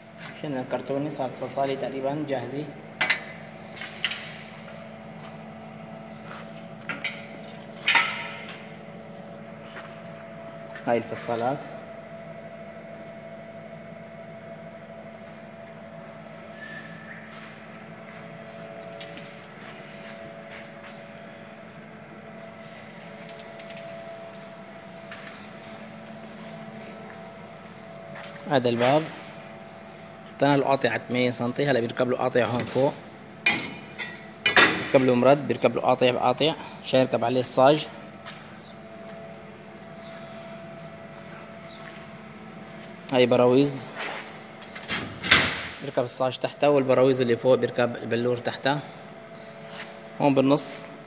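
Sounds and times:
electrical hum: 0.0 - 51.0.

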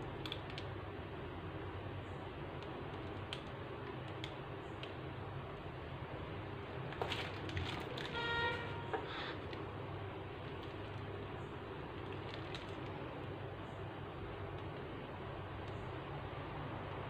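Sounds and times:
low room hum: 0.0 - 17.0
plastic piping bag crinkling: 6.8 - 8.2, 10.4 - 13.2
pitched squeak: 8.0 - 9.4.

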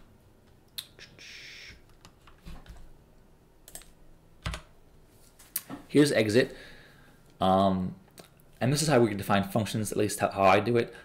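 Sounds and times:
soft hiss: 0.0 - 3.3
keyboard and mouse clicks: 3.7 - 4.7.

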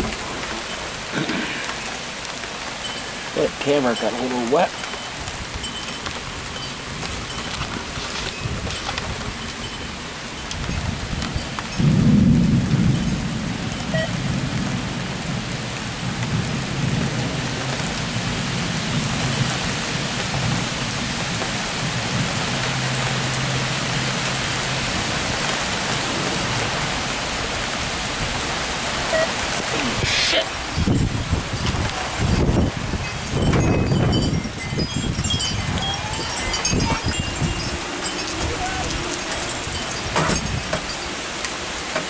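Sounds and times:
thunder clap and rumble: 0.0 - 0.7, 10.4 - 30.0, 30.6 - 41.0
heavy rain falling: 0.0 - 42.0.

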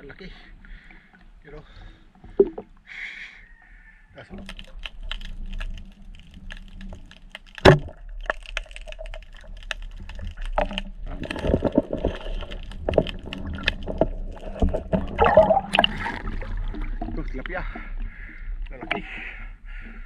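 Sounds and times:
underwater crackle of clicks: 2.3 - 2.8, 4.3 - 19.0.

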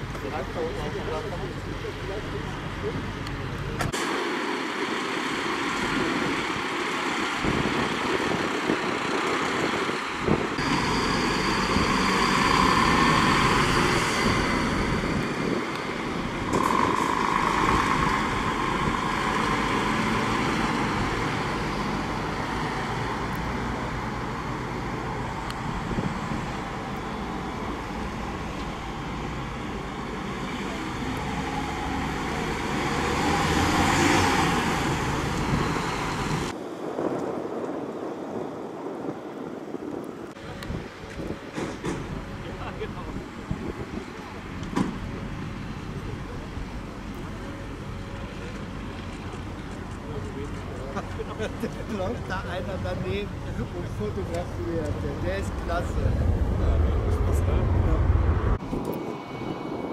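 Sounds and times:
vehicle engine noise: 0.0 - 59.9
higher-pitched tone: 10.6 - 18.9.

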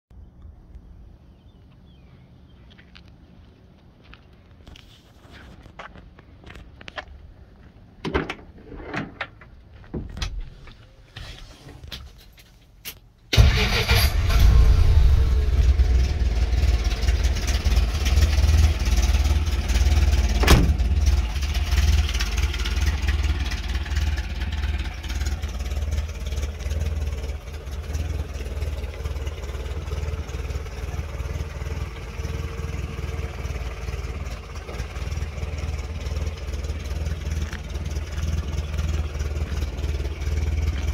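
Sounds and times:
truck engine starting and idling: 11.8 - 40.9.

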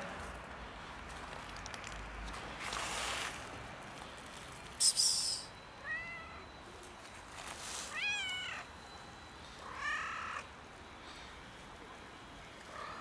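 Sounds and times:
cat meowing: 5.8 - 6.5, 7.9 - 8.7.

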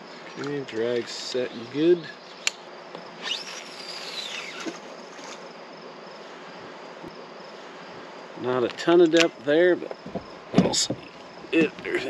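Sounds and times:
insects buzzing: 0.0 - 12.0
fishing reel spool whirring: 3.1 - 5.4
small click: 9.0 - 9.3.

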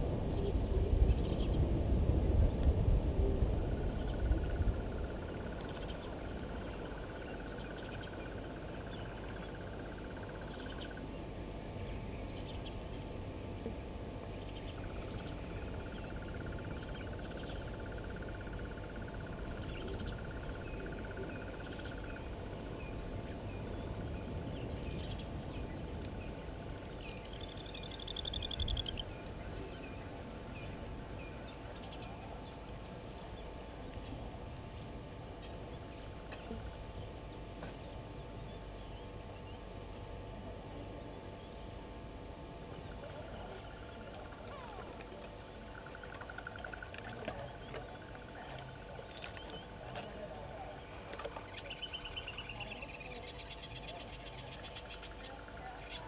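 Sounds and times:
faint bird chirps: 3.6 - 13.1, 14.3 - 34.2, 42.6 - 56.0.

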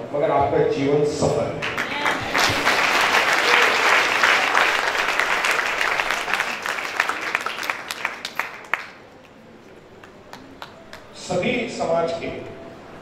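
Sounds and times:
audience applauding: 1.6 - 11.2.

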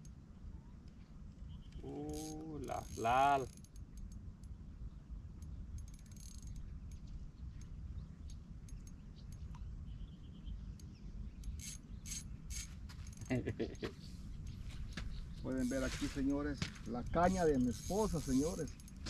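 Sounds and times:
low steady rumble: 0.0 - 19.0
fishing reel clicking: 2.1 - 4.2, 5.8 - 6.6, 11.4 - 12.7, 16.9 - 19.0.

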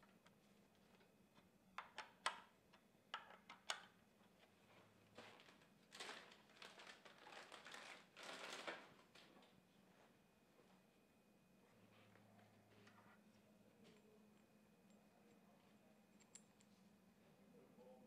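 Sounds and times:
rustling handling noise: 4.2 - 10.7.

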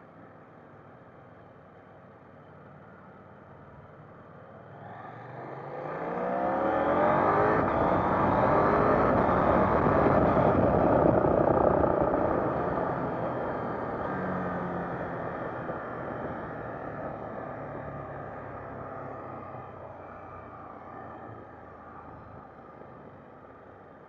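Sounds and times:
motorcycle engine accelerating: 5.4 - 19.5
wind rush: 7.6 - 14.3.

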